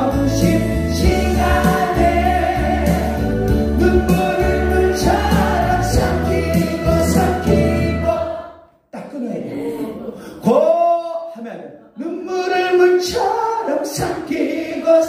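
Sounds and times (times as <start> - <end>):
karaoke backing track with beat: 0.0 - 8.4
people singing along: 0.0 - 8.7, 13.0 - 15.0.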